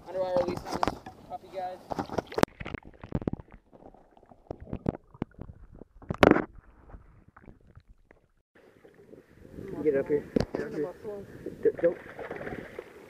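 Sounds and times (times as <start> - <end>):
water gurgling underwater: 2.2 - 9.8
rush of water: 11.6 - 13.0.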